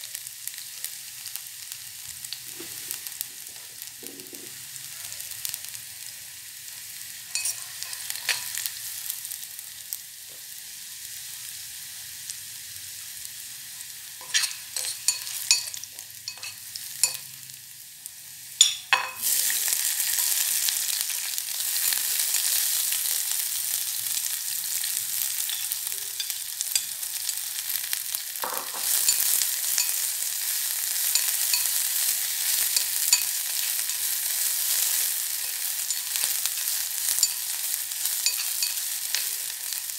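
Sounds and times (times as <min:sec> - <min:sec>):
food sizzling in hot oil: 0:00.0 - 0:39.9
utensil stirring against pot: 0:07.3 - 0:08.6, 0:14.2 - 0:17.4, 0:25.4 - 0:27.6, 0:28.5 - 0:39.9.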